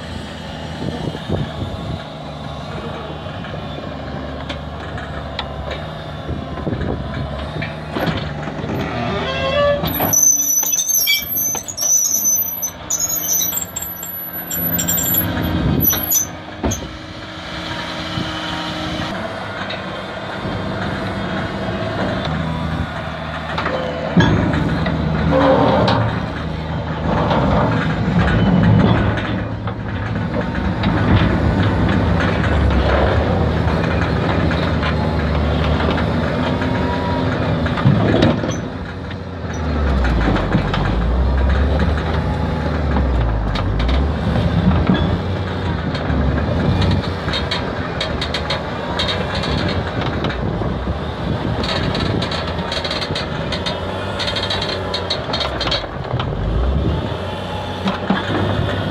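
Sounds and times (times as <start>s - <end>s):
tractor diesel engine running: 0.0s - 58.9s
steel scraper rattling and clanking: 9.8s - 16.9s.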